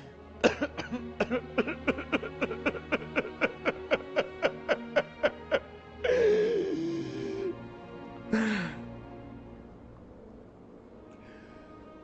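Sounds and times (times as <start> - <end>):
soft background music: 0.0 - 12.0
man sobbing: 0.4 - 7.7, 8.3 - 8.9
man wailing: 1.9 - 7.6.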